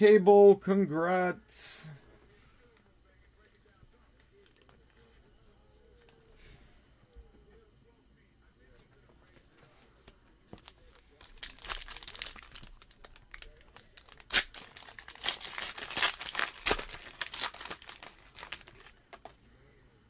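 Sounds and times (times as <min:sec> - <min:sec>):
foil wrapper crinkling and tearing: 0:10.6 - 0:19.3.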